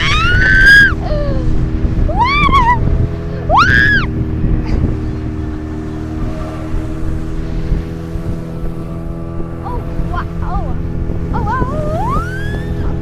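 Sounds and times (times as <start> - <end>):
high-pitched cries: 0.0 - 1.3
speedboat motor running: 0.0 - 13.0
water rushing along hull: 0.0 - 13.0.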